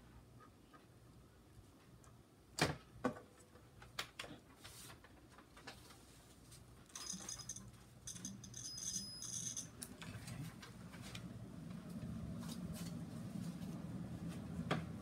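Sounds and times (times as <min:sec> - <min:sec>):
low steady hum: 0:06.6 - 0:15.0.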